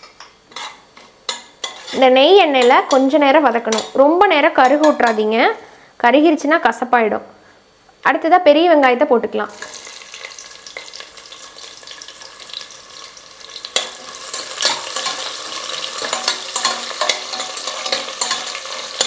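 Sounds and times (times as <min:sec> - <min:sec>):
metal spoon scraping a pot: 0:00.5 - 0:04.0, 0:13.6 - 0:19.0
onions sizzling in oil: 0:09.5 - 0:19.0.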